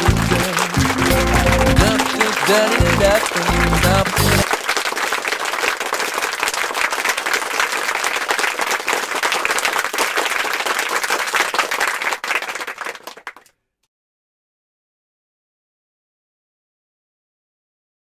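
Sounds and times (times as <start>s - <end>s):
crowd applause: 0.0s - 13.5s.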